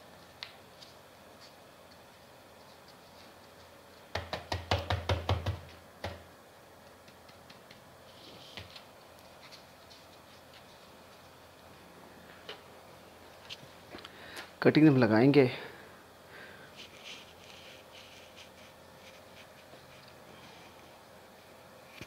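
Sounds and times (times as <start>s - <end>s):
hands knocking on plastic pot: 4.2s - 6.2s.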